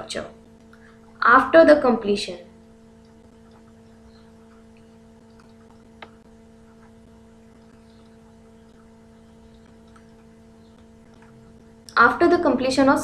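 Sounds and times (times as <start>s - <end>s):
low electrical hum: 0.0s - 13.0s
stylus ticking on tablet: 3.0s - 12.0s.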